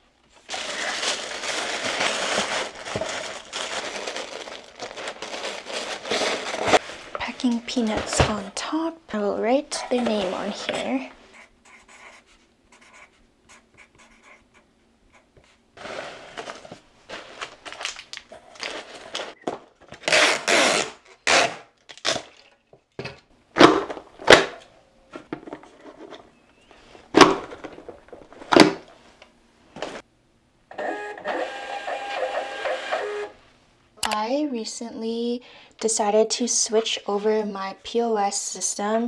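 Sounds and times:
packing peanuts rustling: 0.3s - 8.2s, 15.8s - 19.4s
marker scratching on card: 11.3s - 15.6s
tape gun screeching: 20.0s - 22.3s
label printer whirring: 30.8s - 33.3s.

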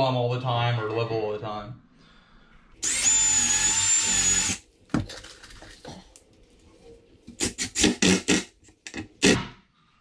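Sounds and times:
cordless drill running: 2.8s - 4.6s.

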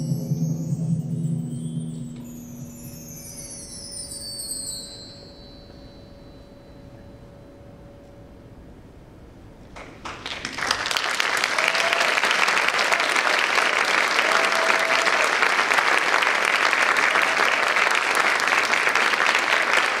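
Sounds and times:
audience applauding: 9.8s - 20.0s.

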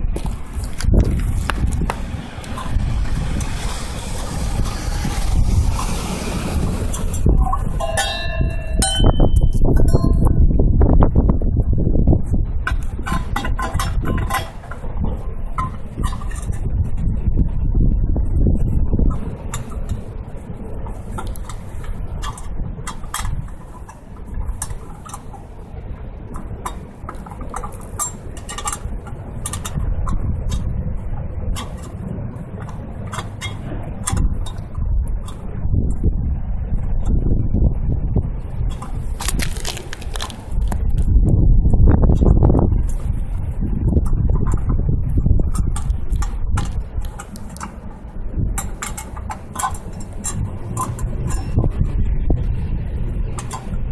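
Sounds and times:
car exhaust rumbling at idle: 0.0s - 53.9s
metal insert scraping a pipe: 0.2s - 10.3s, 12.6s - 17.1s, 19.0s - 20.1s, 20.8s - 25.5s, 26.4s - 30.7s, 31.5s - 32.0s, 32.6s - 35.5s, 48.6s - 51.9s
metallic clicks and knocks: 12.6s - 16.7s, 26.3s - 30.7s, 31.5s - 35.4s, 48.6s - 51.8s, 53.3s - 53.8s.

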